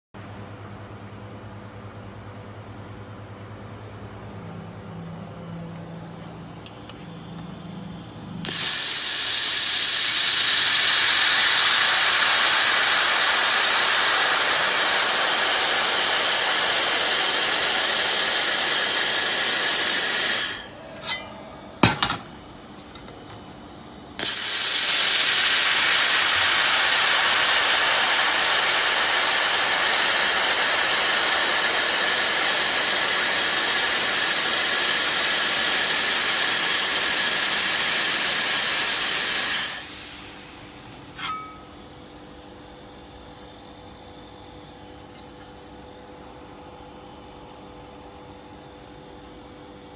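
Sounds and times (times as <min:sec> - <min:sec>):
laser welder hissing: 0:06.0 - 0:22.0, 0:24.2 - 0:41.6.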